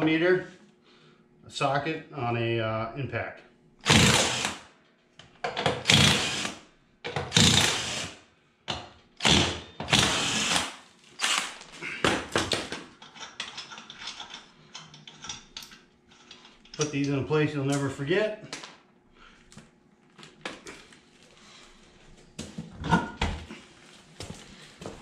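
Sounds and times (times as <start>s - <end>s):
impact wrench bursts: 3.8s - 4.7s, 5.6s - 8.2s, 9.2s - 11.7s
metallic clicks and rattles: 13.0s - 17.9s.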